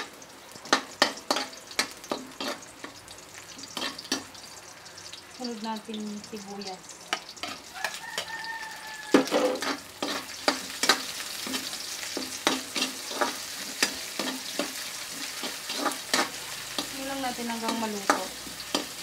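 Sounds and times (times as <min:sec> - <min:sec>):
vegetables sizzling in hot oil: 0:00.0 - 0:19.0
metal spatula clanking on wok: 0:00.7 - 0:02.6, 0:09.1 - 0:19.0.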